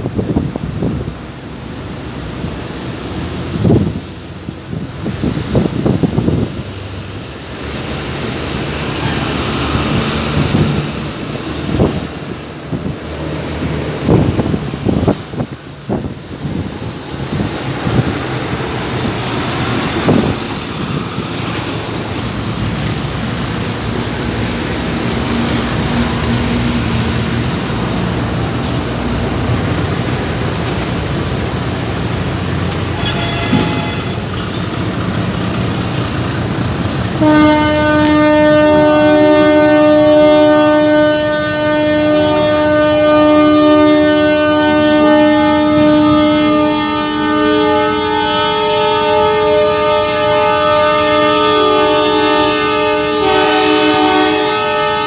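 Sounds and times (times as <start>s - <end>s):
loud horn blast: 8.8s - 11.0s, 32.9s - 34.7s, 37.2s - 55.0s.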